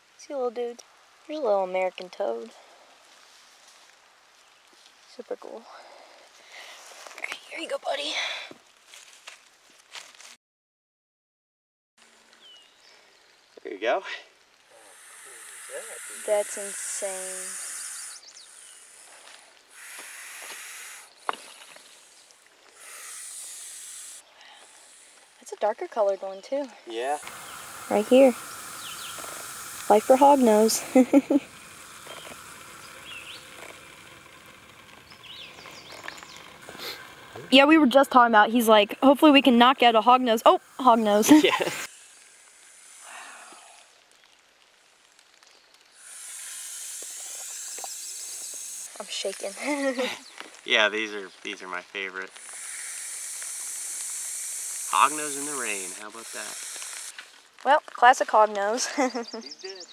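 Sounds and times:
snake hissing: 14.6s - 45.2s, 45.9s - 57.6s.

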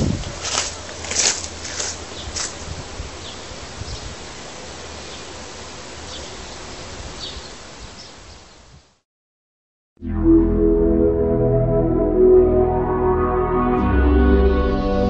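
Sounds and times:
footstep on gravel: 0.0s - 2.6s
outdoor background noise: 0.0s - 9.0s.

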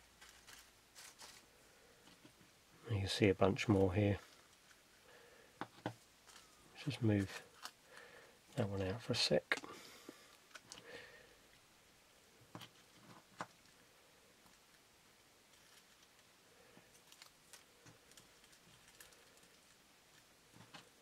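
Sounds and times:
dry leaves rustling: 0.2s - 1.5s.

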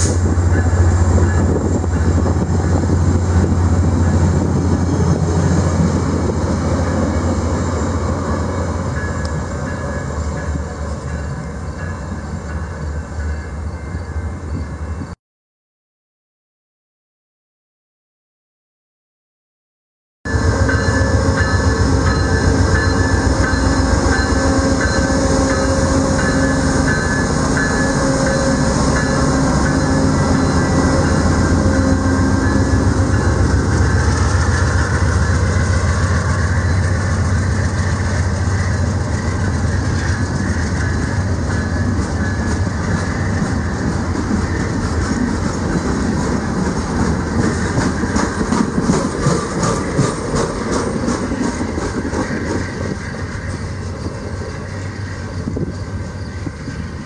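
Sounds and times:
diesel locomotive passing: 0.0s - 15.2s, 20.3s - 57.0s
wheels clacking over rail joints: 37.5s - 55.0s.

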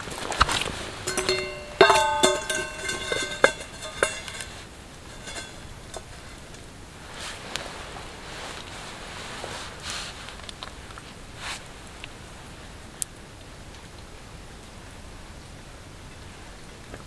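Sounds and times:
pan ringing metallic tone: 1.0s - 6.4s
faint pan clicks: 1.1s - 4.5s
frying pan knocking and clanking: 1.1s - 4.5s, 5.1s - 6.4s.

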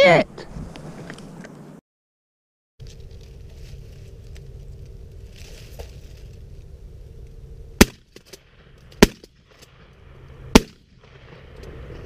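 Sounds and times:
loud shotgun shots: 7.8s - 8.1s, 9.0s - 9.4s, 10.5s - 11.1s.

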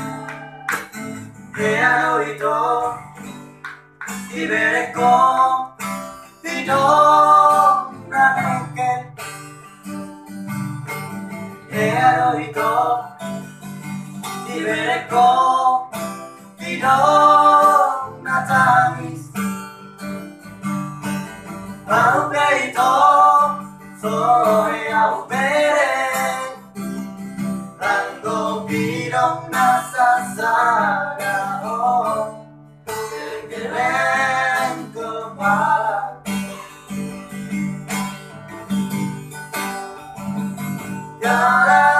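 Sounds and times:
acoustic guitar strumming: 0.0s - 41.9s
man singing into a microphone: 1.6s - 3.2s, 4.3s - 5.8s, 6.4s - 9.2s, 11.7s - 13.2s, 14.3s - 16.0s, 16.6s - 19.4s, 21.9s - 26.6s, 27.8s - 32.4s, 33.0s - 36.3s, 41.2s - 41.9s.

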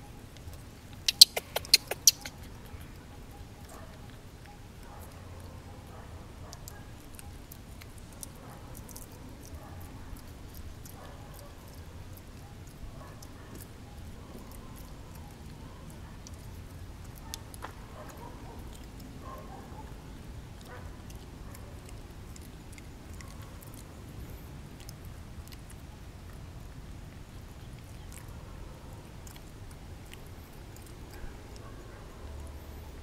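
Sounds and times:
faint clicks and ticks: 0.2s - 33.0s.

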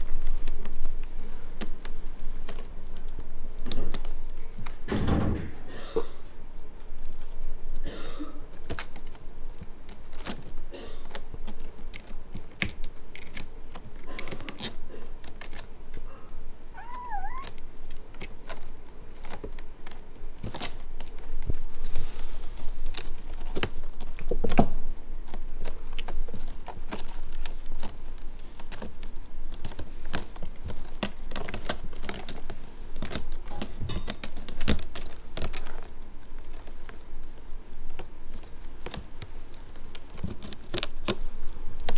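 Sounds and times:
kitten mewing: 16.7s - 17.6s.

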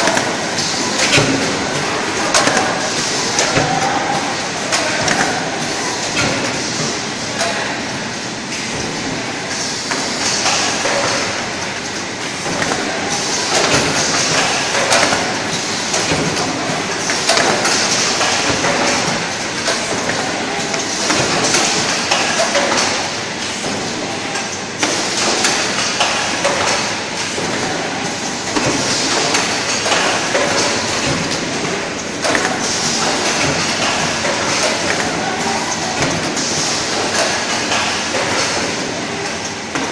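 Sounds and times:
box making machine clattering: 8.6s - 24.0s.

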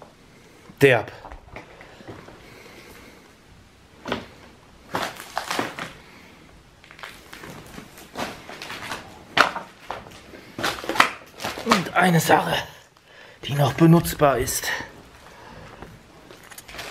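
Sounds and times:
plastic sheeting rustling: 4.9s - 6.1s, 6.8s - 12.2s, 16.0s - 16.9s.

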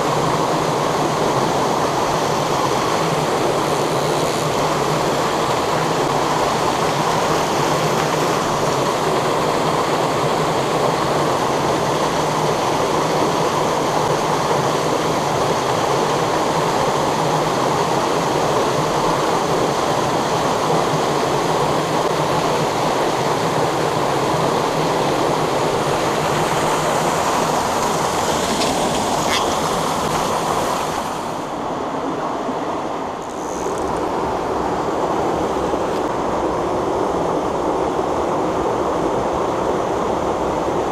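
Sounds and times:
waterfall rushing: 0.0s - 31.9s.

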